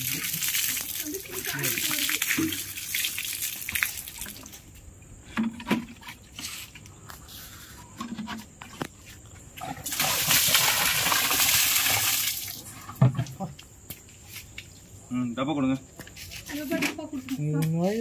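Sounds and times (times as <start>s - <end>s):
water splashing on concrete floor: 0.0s - 4.8s, 9.6s - 13.5s.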